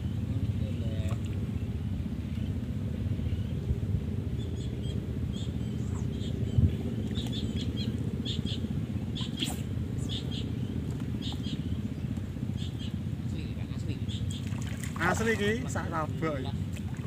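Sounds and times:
steady low rumble: 0:00.0 - 0:17.0
small birds chirping: 0:04.3 - 0:16.7.

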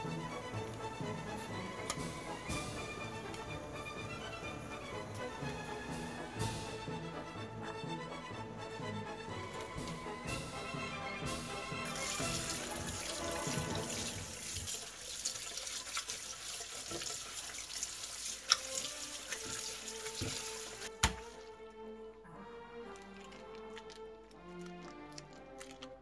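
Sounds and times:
background music: 0:00.0 - 0:26.0
tap water splashing into colander: 0:11.9 - 0:21.4.

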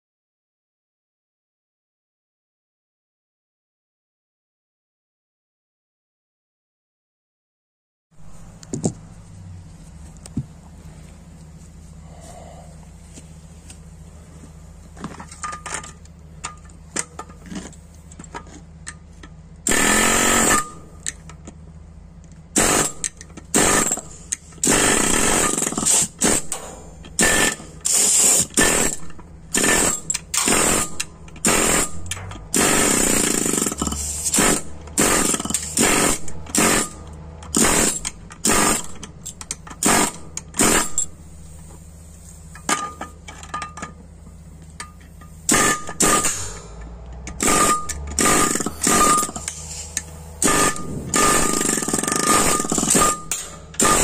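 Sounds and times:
pneumatic air chisel hammering: 0:19.6 - 0:21.3, 0:22.5 - 0:44.0, 0:44.6 - 0:54.0.

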